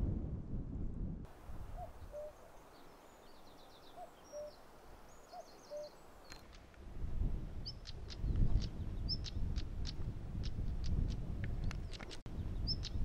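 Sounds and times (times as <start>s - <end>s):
wind rumbling on microphone: 0.0s - 2.4s, 6.2s - 13.0s
small songbirds chirping: 1.7s - 13.0s.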